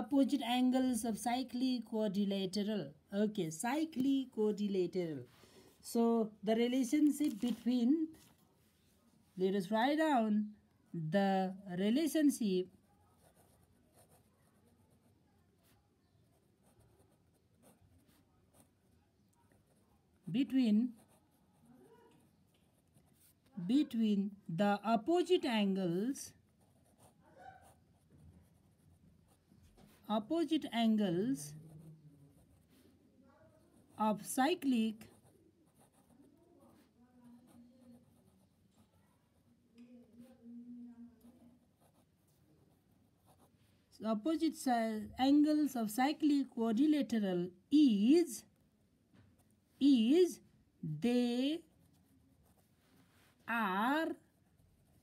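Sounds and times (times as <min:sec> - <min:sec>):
pen scratching on paper: 0:11.8 - 0:33.0, 0:33.8 - 0:40.5, 0:41.1 - 0:44.3, 0:51.0 - 0:55.0.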